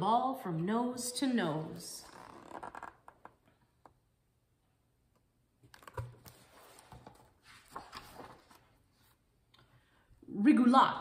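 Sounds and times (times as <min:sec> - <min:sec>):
book pages turning: 0:05.6 - 0:09.2.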